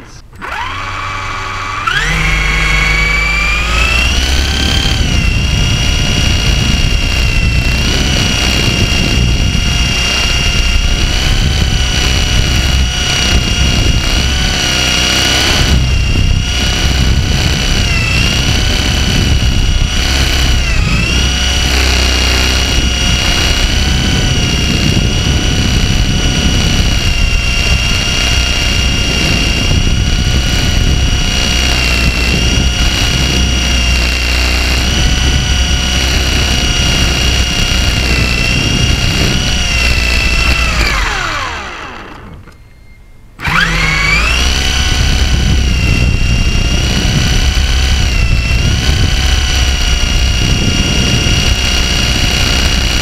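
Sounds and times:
helicopter motor and rotors whining: 0.0 - 53.0.

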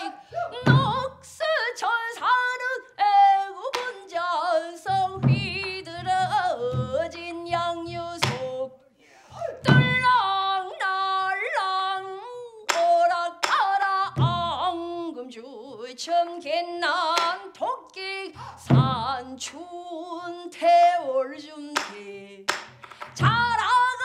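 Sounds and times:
woman singing: 0.0 - 24.0
barrel drum thumps: 0.7 - 1.1, 5.0 - 8.4, 9.7 - 10.1, 18.7 - 19.1, 23.2 - 23.6.

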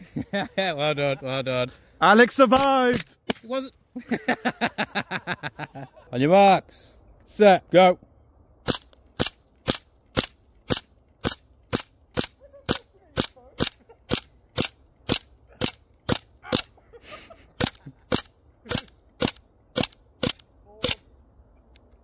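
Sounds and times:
airsoft pistol firing: 8.6 - 16.7, 17.6 - 21.0.

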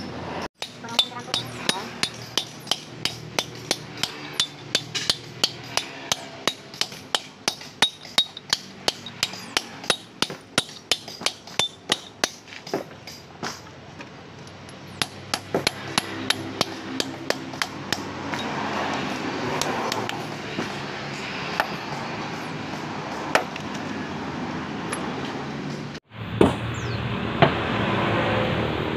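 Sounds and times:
steady background noise: 0.0 - 28.9
hammer striking chisel: 0.6 - 13.7, 14.7 - 23.8.

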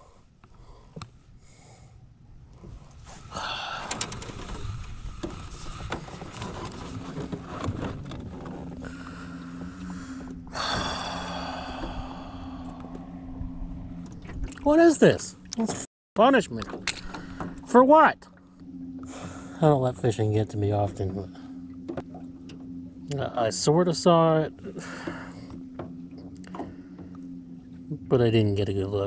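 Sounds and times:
steady low hum: 0.0 - 29.0
water noise: 0.0 - 29.0
wind on microphone: 2.6 - 8.8.

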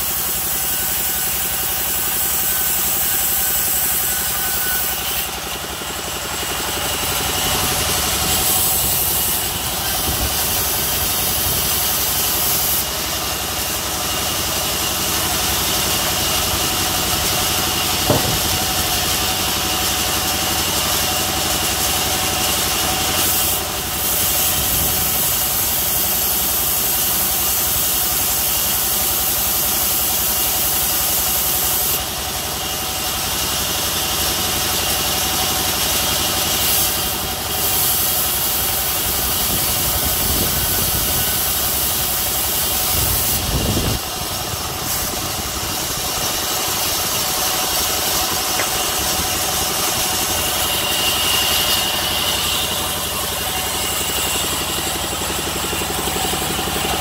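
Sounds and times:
sawmill saw cutting log: 0.0 - 57.0
sharp knock: 18.0 - 18.9, 48.6 - 49.0.

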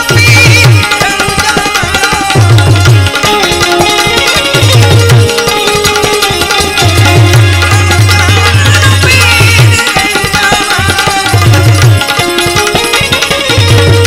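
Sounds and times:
tabla treble strokes: 0.0 - 14.0.

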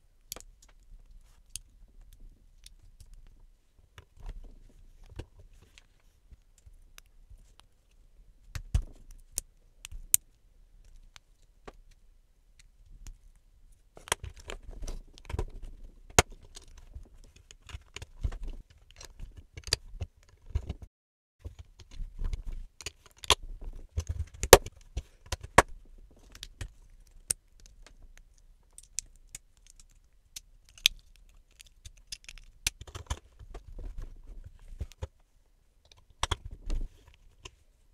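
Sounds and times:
plastic bricks clicking and snapping: 28.7 - 33.6.

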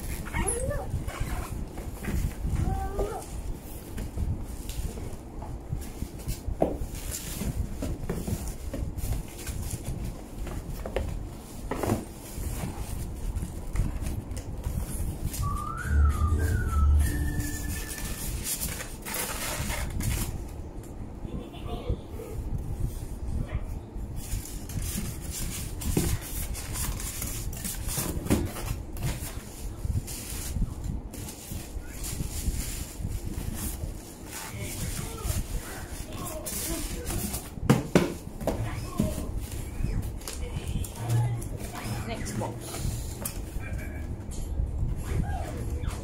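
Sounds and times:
cardboard and paper rustling: 0.0 - 20.6, 24.2 - 43.6
cardboard scrapes: 14.9 - 20.3.

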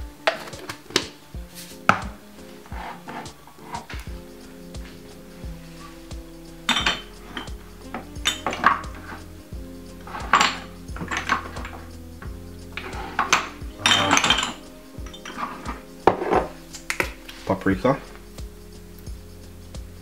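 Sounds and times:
background music: 0.0 - 20.0
metal spoon clinking against bowls: 6.7 - 9.2, 10.0 - 11.9, 12.8 - 16.5.

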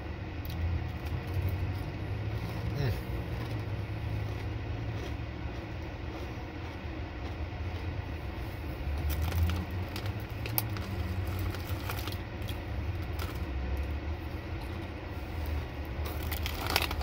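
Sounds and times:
steady low hum: 0.0 - 17.0
crunchy chewing of chips: 0.4 - 17.0
chip bag crinkling: 8.8 - 17.0
scattered crackles: 16.0 - 17.0.

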